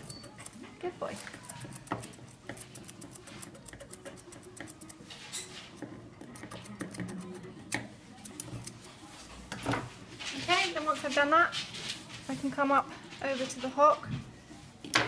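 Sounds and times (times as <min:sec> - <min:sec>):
scissors snipping hair: 0:01.2 - 0:05.1, 0:06.3 - 0:08.9.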